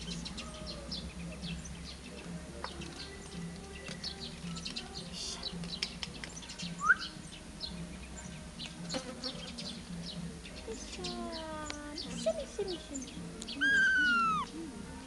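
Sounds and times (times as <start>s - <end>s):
high-pitched chirps: 13.5s - 14.5s.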